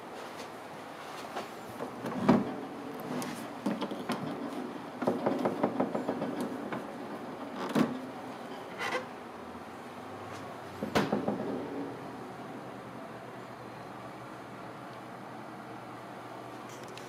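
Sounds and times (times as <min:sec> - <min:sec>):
fridge door thump: 0:10.8 - 0:11.6.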